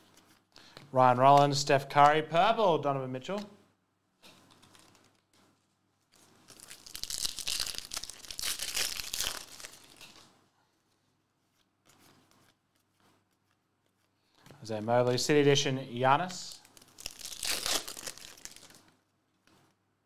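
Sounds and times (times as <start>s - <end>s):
foil wrapper tearing and crinkling: 6.4s - 10.3s, 16.4s - 18.9s.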